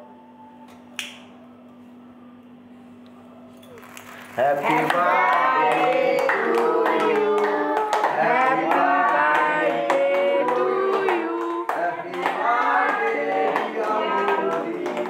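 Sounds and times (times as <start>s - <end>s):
hands clapping in time: 4.9s - 15.0s.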